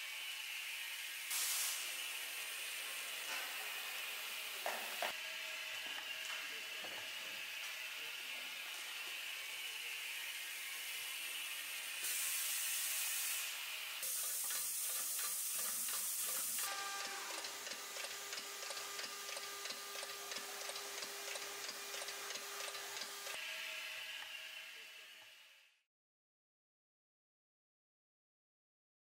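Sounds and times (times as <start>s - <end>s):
compressed air hissing: 1.3s - 2.0s, 12.0s - 16.6s.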